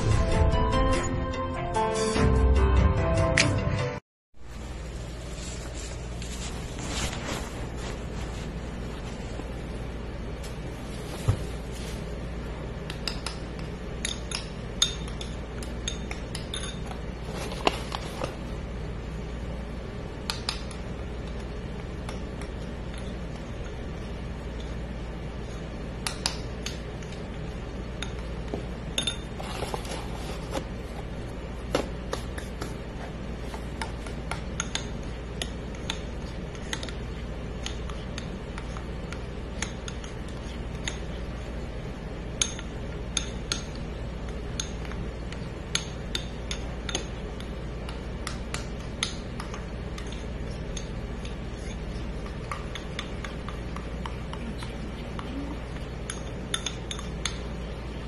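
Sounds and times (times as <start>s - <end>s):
steady low hum: 0.0s - 2.9s, 4.4s - 58.0s
spoon clinking against bowl: 14.0s - 17.0s, 29.0s - 29.3s, 45.7s - 57.5s.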